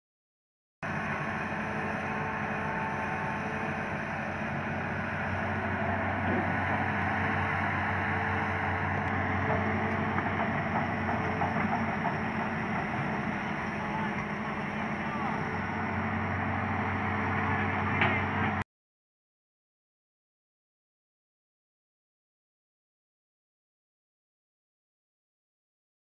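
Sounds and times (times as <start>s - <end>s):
excavator diesel engine running: 0.8s - 18.6s.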